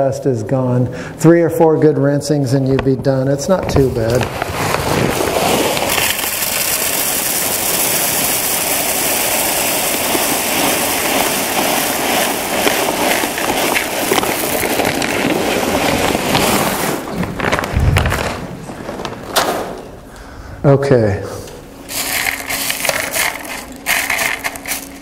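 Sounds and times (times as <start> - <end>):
clay pebbles pouring into plastic bucket: 3.7 - 18.4, 21.9 - 25.0.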